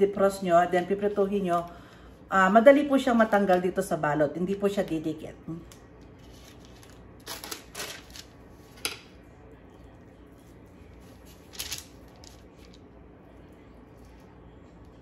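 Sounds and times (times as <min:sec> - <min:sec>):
wax paper rustling and crinkling: 0:06.2 - 0:08.8, 0:10.3 - 0:12.8.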